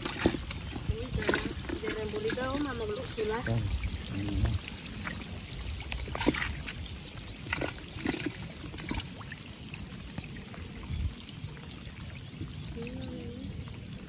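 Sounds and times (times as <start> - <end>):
hands splashing in muddy water: 0.0 - 5.3, 5.9 - 6.8, 7.4 - 9.2
light rain on water: 0.0 - 14.0.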